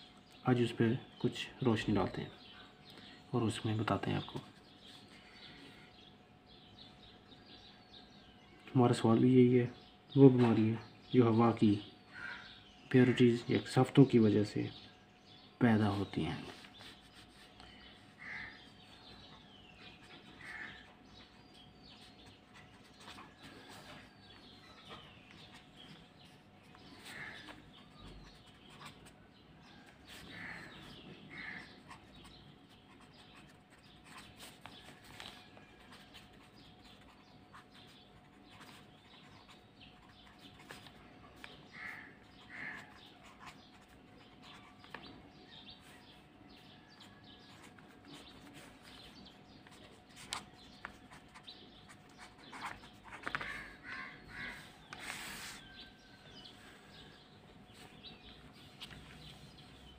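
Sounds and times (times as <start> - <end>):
faint bird chirps: 0.0 - 59.9
pen scratching on paper: 16.5 - 29.2, 30.0 - 55.9.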